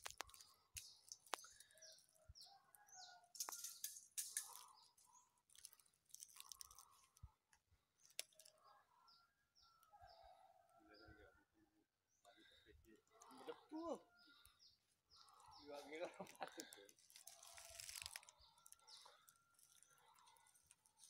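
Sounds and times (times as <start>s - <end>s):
bird chirps: 0.1s - 5.4s
footsteps on dry leaves: 17.0s - 18.8s.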